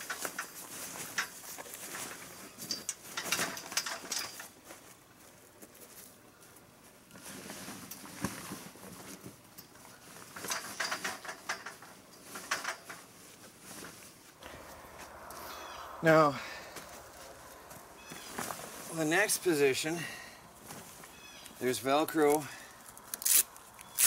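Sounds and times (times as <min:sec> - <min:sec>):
canvas cover crinkling and rustling: 0:06.8 - 0:14.4.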